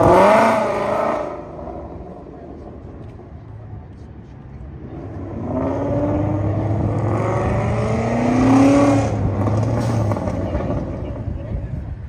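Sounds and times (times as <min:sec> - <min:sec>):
car engine accelerating hard: 0:00.0 - 0:02.7, 0:04.9 - 0:11.2.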